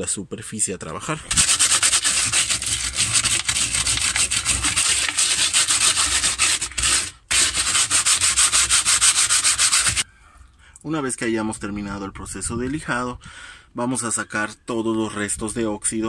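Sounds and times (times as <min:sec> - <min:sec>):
sandpaper scratching metal: 0:01.3 - 0:10.0.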